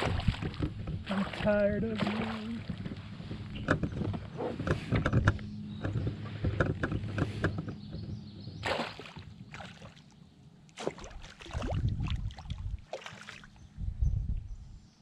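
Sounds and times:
fish splashing: 8.6 - 10.0, 10.8 - 13.6.

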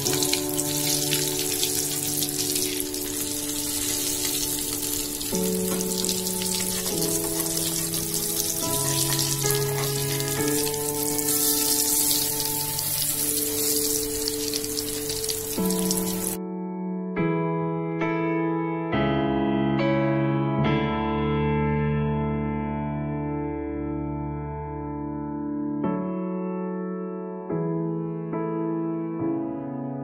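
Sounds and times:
food sizzling in hot oil: 0.0 - 16.4
soft keyboard chords music: 0.0 - 30.0.

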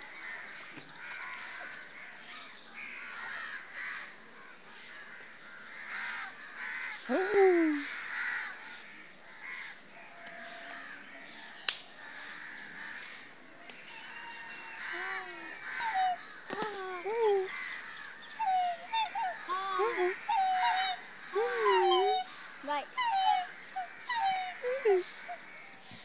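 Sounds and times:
small birds chirping: 10.1 - 26.0
swans calling: 14.2 - 25.6.

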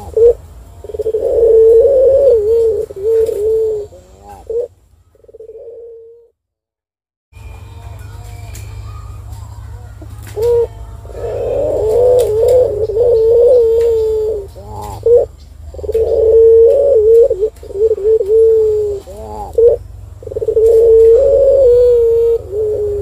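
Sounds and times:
dove cooing: 0.0 - 6.3, 9.9 - 23.0
steady low hum: 0.0 - 6.4, 7.4 - 23.0.

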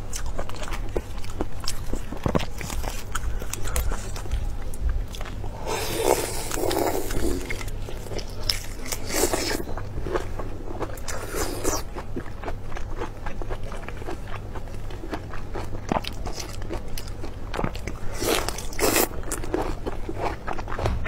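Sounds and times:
chewing prawns with crunching: 0.0 - 21.0.

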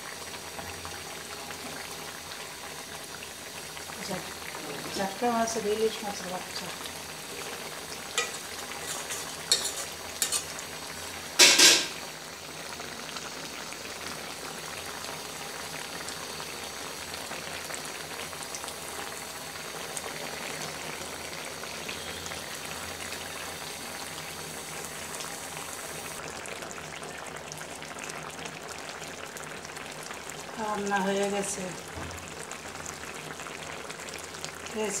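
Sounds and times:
curry bubbling in a pot: 0.0 - 35.0.

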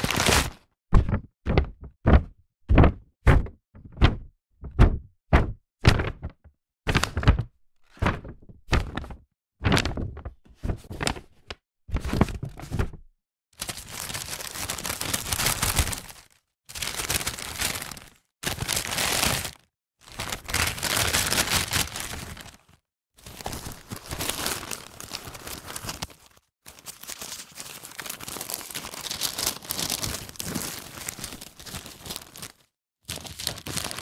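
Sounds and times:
paper bag rustling: 0.0 - 0.6, 13.6 - 34.0
paper crinkling and crumpling: 0.0 - 0.6, 8.8 - 10.2, 13.6 - 34.0.

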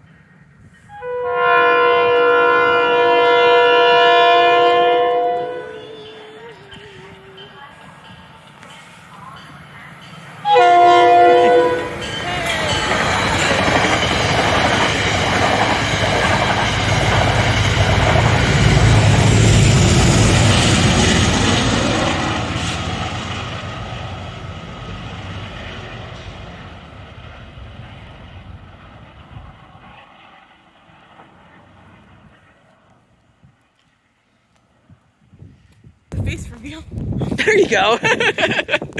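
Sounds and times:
diesel locomotive engine rumble: 0.0 - 37.2
train coaches clattering over rails: 5.5 - 23.3.

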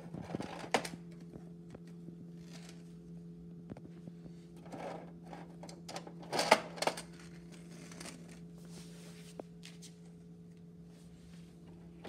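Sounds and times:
steady low hum: 0.0 - 12.0
toy truck rolling on tile: 4.6 - 8.4.

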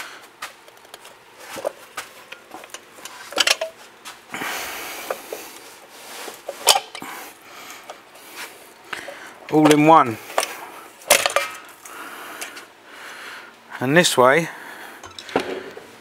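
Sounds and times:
metal clinks and scraping: 0.9 - 3.8, 6.3 - 7.2, 15.0 - 15.4.

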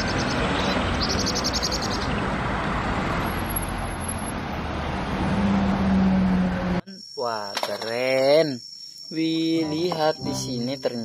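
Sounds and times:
bird chirps: 0.0 - 2.2
bus driving by: 0.0 - 6.8
street traffic noise: 0.0 - 6.9.

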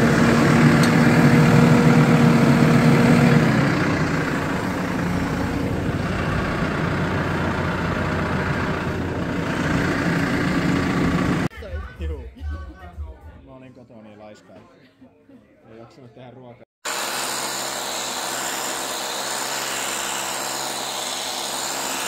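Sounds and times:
engine idling: 0.0 - 11.5.

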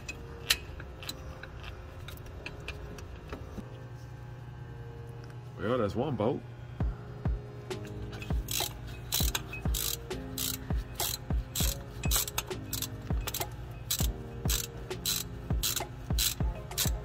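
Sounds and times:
background music with steady beat: 6.5 - 17.0
socket ratchet clicking: 7.8 - 17.0.

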